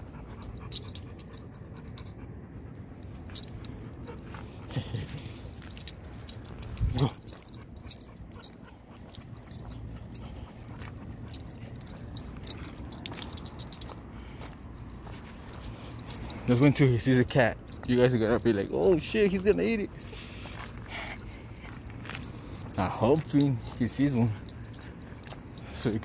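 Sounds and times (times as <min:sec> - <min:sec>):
chain leash jingling: 0:00.0 - 0:26.0.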